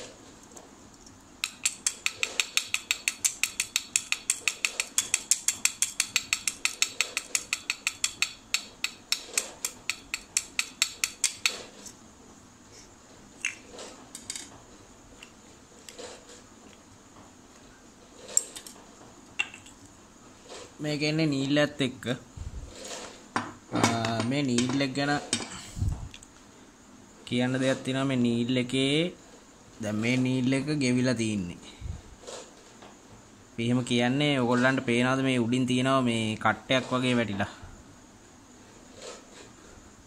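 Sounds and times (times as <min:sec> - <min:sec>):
screwdriver tapping on metal: 0:01.4 - 0:11.6.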